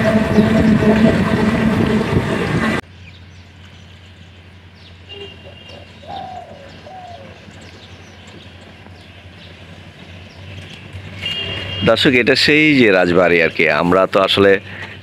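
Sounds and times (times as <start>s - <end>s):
dove cooing: 5.7s - 7.4s.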